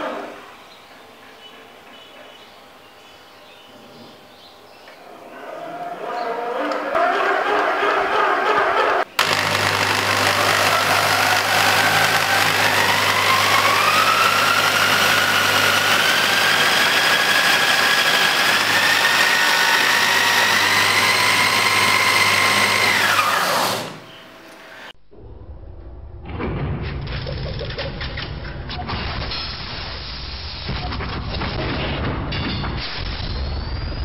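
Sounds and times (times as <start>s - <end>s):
electric drill mechanical whine: 9.2s - 24.2s.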